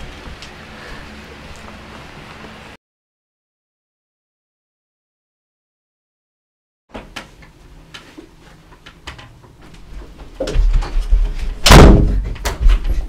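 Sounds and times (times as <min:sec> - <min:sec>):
loud bang: 0:11.6 - 0:12.2.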